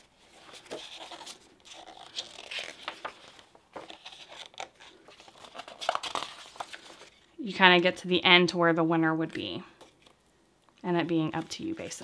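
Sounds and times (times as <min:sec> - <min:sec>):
book pages turning: 0:00.0 - 0:07.3.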